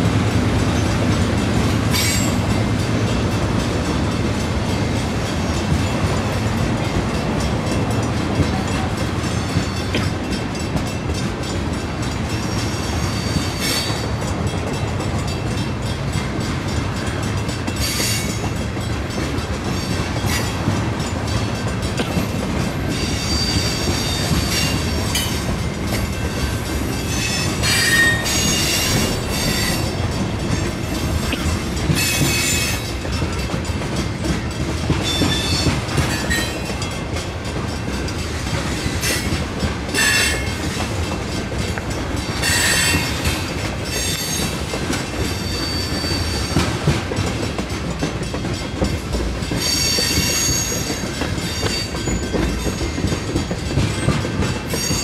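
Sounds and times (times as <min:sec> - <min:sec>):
train wheels rumbling on rails: 0:00.0 - 0:55.0
wheel squeals: 0:26.5 - 0:29.9, 0:45.2 - 0:46.6, 0:49.6 - 0:53.2.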